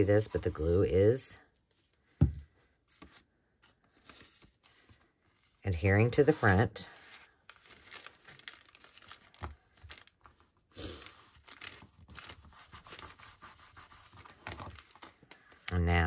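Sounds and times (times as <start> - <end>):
paper rustling and crinkling: 2.9 - 5.6, 6.4 - 15.7.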